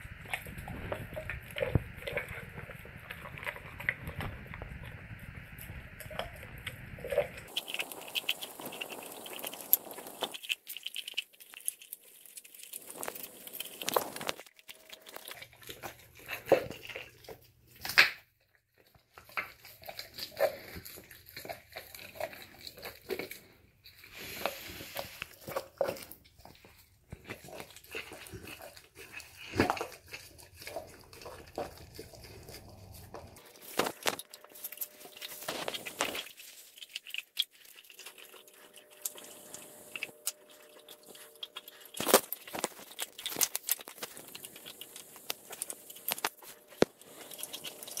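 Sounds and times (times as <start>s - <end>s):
dog chewing and crunching bones: 0.0s - 48.0s.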